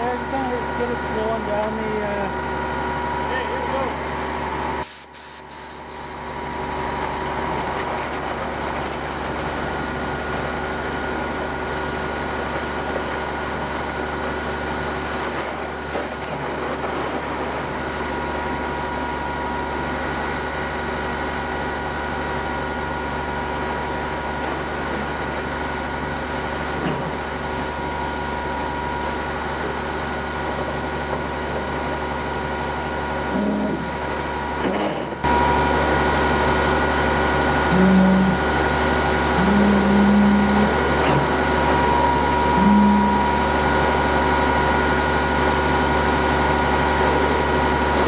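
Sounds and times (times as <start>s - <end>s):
diesel truck engines running: 0.0s - 48.0s
steady whining tones: 33.2s - 45.5s.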